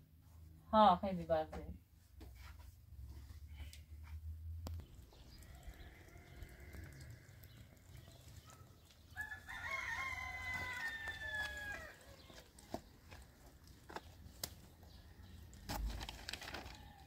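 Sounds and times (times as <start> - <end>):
rooster crowing: 5.3 - 7.4, 9.1 - 12.3.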